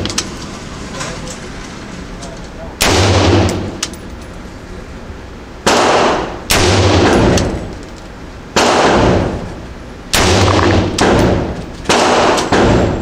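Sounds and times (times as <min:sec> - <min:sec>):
rifle shots echoing indoors: 0:02.8 - 0:03.8, 0:05.6 - 0:07.7, 0:08.5 - 0:13.0.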